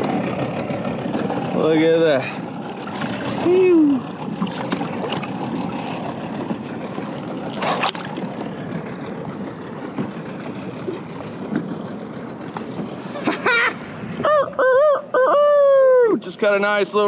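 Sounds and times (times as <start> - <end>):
seawater sloshing and lapping: 0.0 - 14.2
sharp water splash: 7.4 - 8.3.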